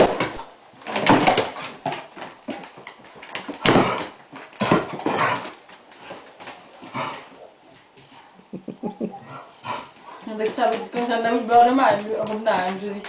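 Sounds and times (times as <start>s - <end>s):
dogs scuffling on wooden floor: 0.0s - 8.3s, 9.6s - 13.0s
dog vocal noises: 8.1s - 11.5s.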